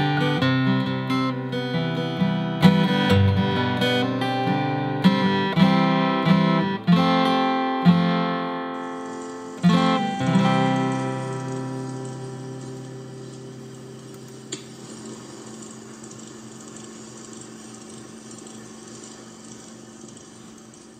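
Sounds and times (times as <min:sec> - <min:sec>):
acoustic guitar music: 0:00.0 - 0:15.6.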